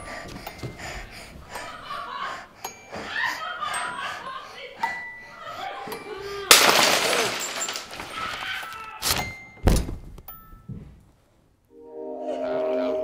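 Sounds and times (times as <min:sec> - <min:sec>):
loud crash: 0:06.5 - 0:08.2.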